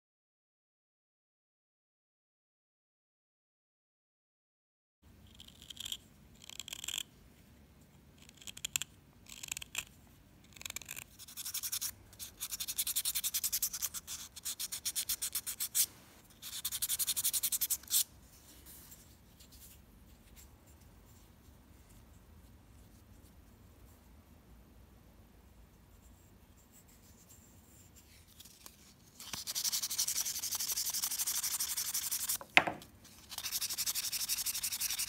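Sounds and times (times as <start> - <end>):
sandpaper rubbing on wood: 29.2 - 32.4.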